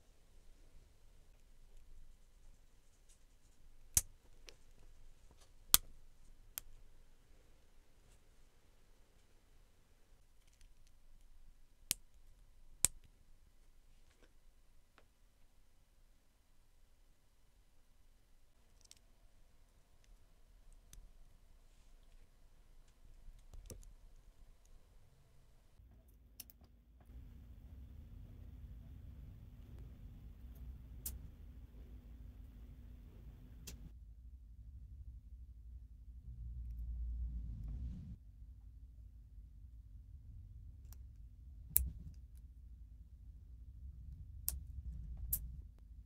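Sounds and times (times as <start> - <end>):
faint plastic pieces clicking: 10.3 - 13.1
faint low handling rumble: 27.0 - 46.0.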